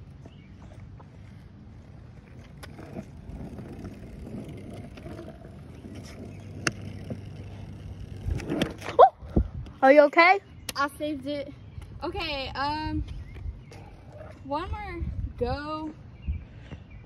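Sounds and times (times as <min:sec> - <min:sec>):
skateboard wheels rolling on asphalt: 0:00.0 - 0:10.1.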